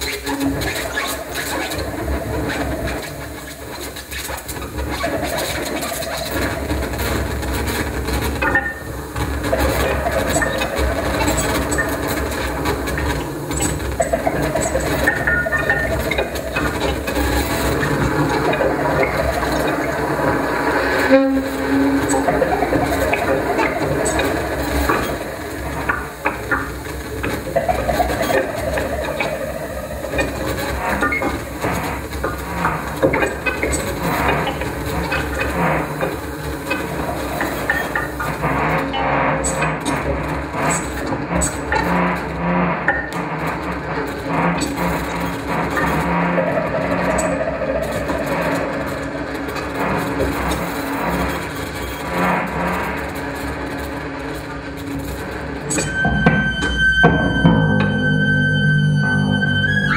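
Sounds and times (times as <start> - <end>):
experimental improvised music: 0.0 - 59.9
short pitched tones: 55.7 - 59.9.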